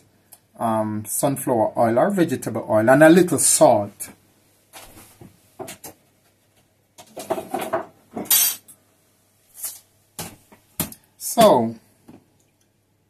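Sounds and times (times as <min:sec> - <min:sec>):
dishes and utensils clinking: 0:07.1 - 0:08.7.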